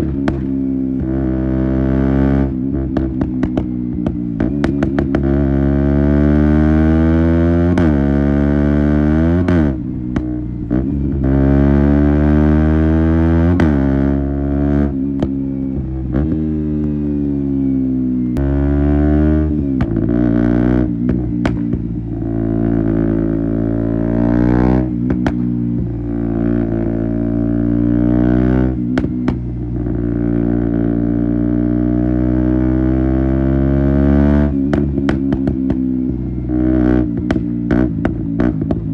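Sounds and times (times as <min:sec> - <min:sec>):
exhaust pops: 0:00.0 - 0:00.5, 0:21.0 - 0:22.0, 0:25.0 - 0:25.9
motorcycle engine running hard: 0:00.0 - 0:38.9.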